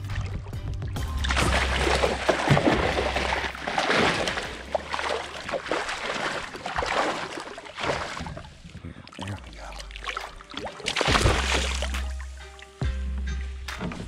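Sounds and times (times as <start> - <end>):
fish thrashing in water: 0.0 - 12.3
water splashing and sloshing: 0.0 - 14.0.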